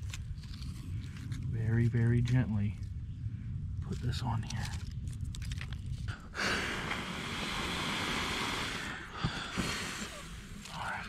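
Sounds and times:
person blowing on tinder: 6.4s - 10.7s.

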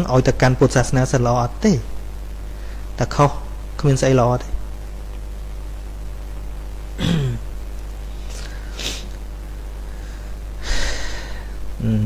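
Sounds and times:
low electrical hum: 0.0s - 12.0s
short breathy hisses: 8.2s - 9.2s.

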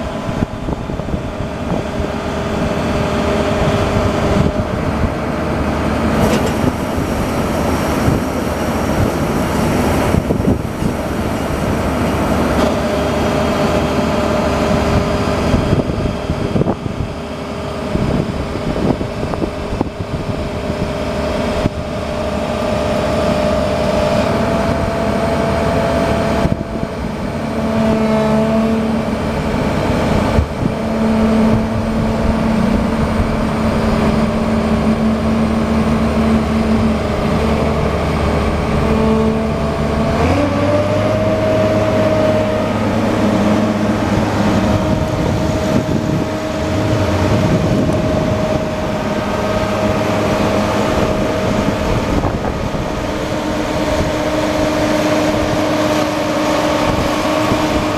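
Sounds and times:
diesel engine running: 0.0s - 57.9s.

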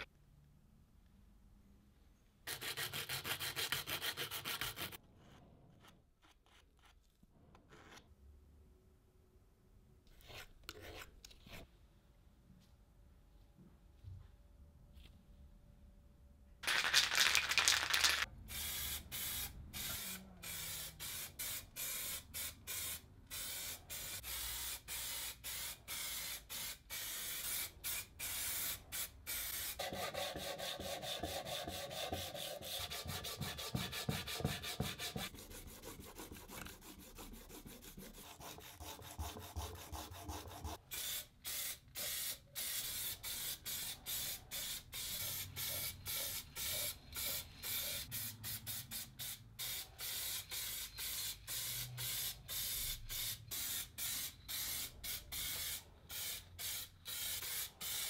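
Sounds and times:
spray can hissing bursts: 16.6s - 29.8s, 40.9s - 58.0s
sanding sponge rubbing on metal: 29.8s - 40.8s.

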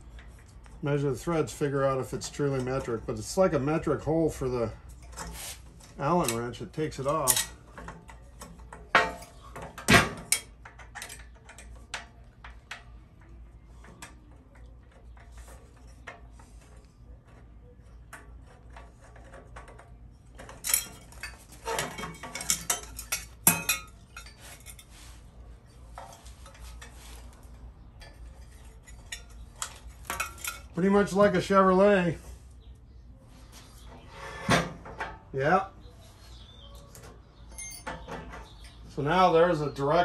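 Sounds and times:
metal parts clinking: 6.2s - 7.7s, 20.4s - 24.9s, 28.0s - 31.2s, 37.5s - 38.7s
metal clatter: 18.4s - 24.9s.

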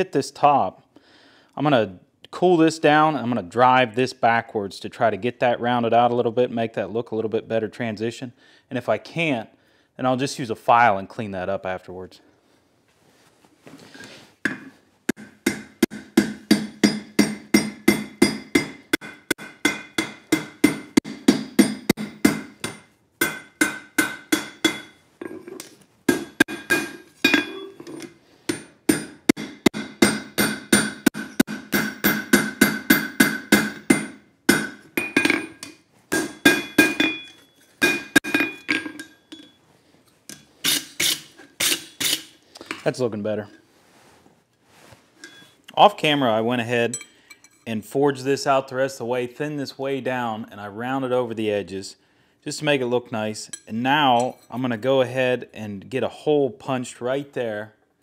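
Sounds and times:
hammer ringing on hot steel: 15.4s - 25.0s, 36.1s - 39.6s.

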